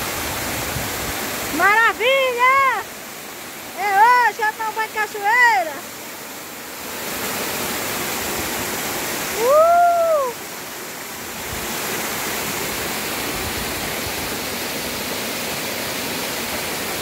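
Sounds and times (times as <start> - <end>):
waterfall rushing over rock: 0.0 - 17.0.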